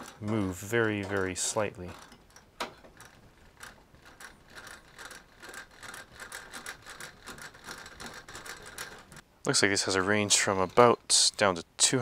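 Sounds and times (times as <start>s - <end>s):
small mechanical clicks: 0.0s - 9.2s.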